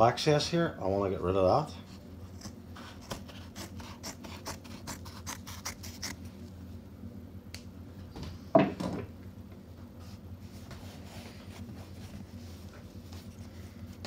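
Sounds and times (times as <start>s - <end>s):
scissors snipping cloth: 2.4s - 6.2s.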